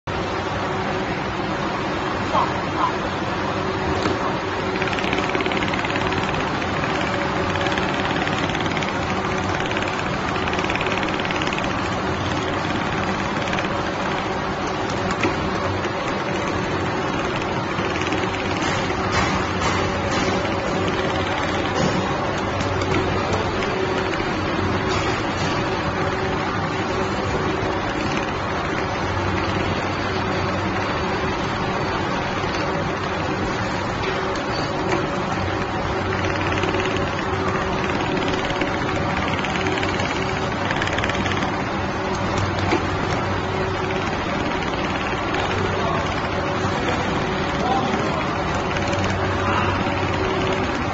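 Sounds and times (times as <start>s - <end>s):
motor hum: 0.1s - 50.9s
sewing machine stitching: 4.6s - 31.2s, 34.8s - 50.9s.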